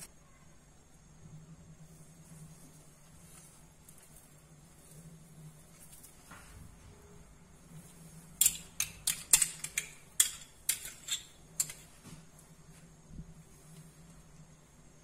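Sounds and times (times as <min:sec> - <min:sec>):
faint low hum: 0:00.0 - 0:15.0
kitchen utensils clicking: 0:08.4 - 0:11.9.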